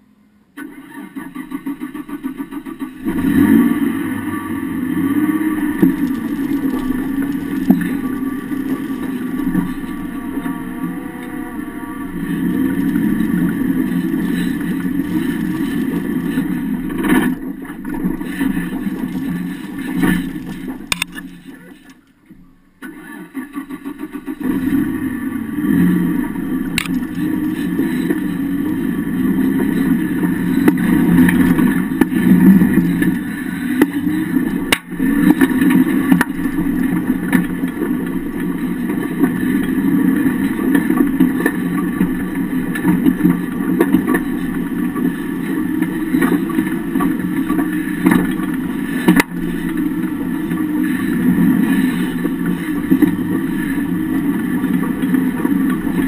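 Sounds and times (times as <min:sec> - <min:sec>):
vehicle engine running: 0:00.9 - 0:56.0
sharp clicks: 0:20.0 - 0:22.0.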